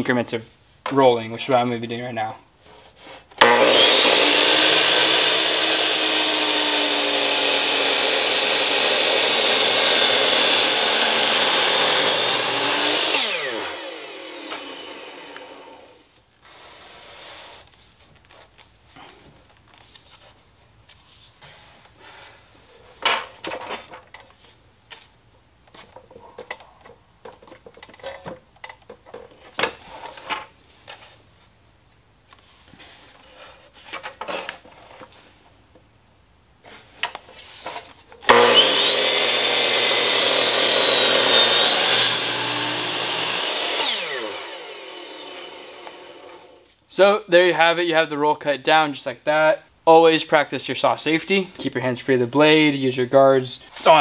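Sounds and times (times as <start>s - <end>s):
miter saw whining: 3.4s - 16.0s, 38.3s - 46.6s
saw winding down: 3.4s - 16.0s, 38.3s - 46.6s.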